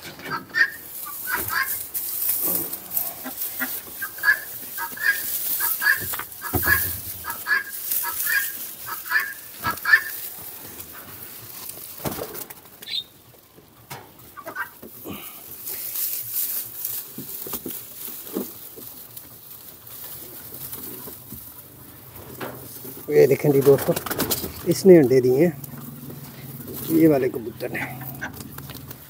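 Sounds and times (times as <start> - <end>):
hen clucking: 0.0 - 29.0
dry straw rustling and crackling: 0.3 - 29.0.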